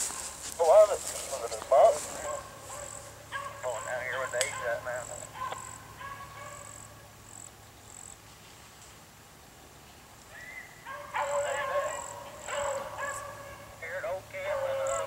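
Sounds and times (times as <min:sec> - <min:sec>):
hounds baying and howling: 0:00.0 - 0:07.0, 0:10.4 - 0:15.0.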